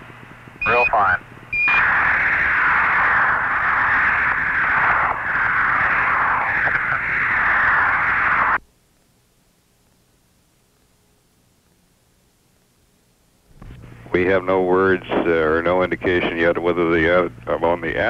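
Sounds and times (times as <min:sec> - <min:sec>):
loud radio static: 0:00.6 - 0:08.6, 0:14.1 - 0:18.0.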